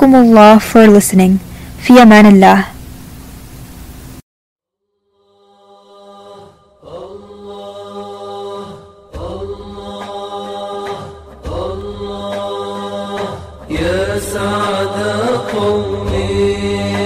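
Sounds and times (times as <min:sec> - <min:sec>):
voices chanting held notes: 0:05.5 - 0:17.0.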